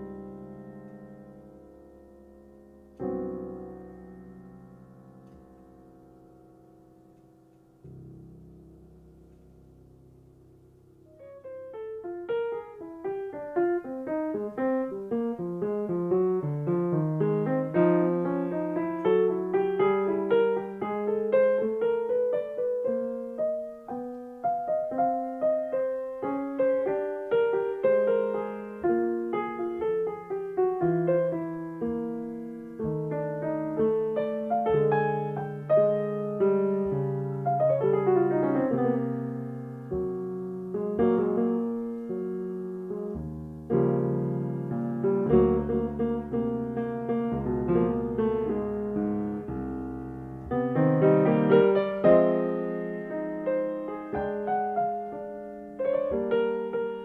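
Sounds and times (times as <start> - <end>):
solo piano music: 0.0 - 57.0.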